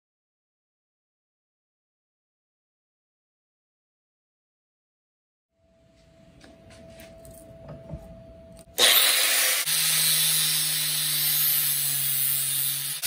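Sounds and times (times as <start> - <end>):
angle grinder cutting metal: 8.8 - 13.0.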